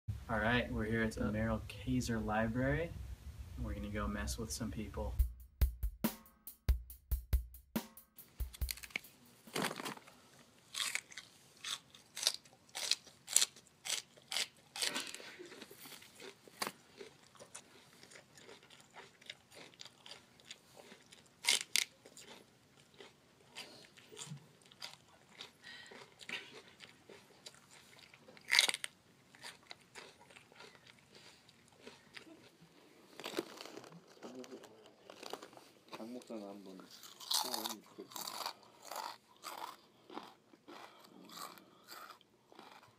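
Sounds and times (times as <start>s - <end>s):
crunchy eating: 8.5s - 42.9s.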